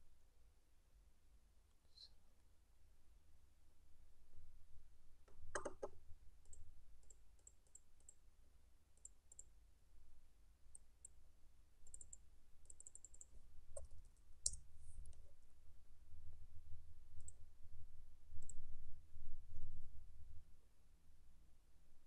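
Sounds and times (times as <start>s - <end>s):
computer mouse clicks: 5.5s - 8.2s, 9.0s - 9.5s, 11.8s - 15.2s.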